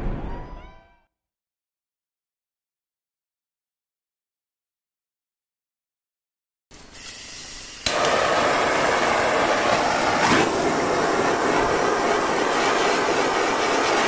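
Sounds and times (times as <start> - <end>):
gas hissing: 6.7 - 14.0
torch igniter click: 7.0 - 8.8
rushing torch flame: 7.0 - 14.0.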